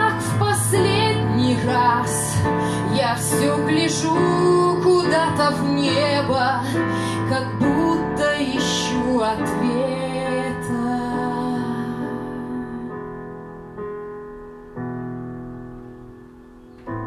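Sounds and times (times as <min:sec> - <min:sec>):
woman singing into microphone: 0:00.0 - 0:13.2
digital piano: 0:00.0 - 0:17.0.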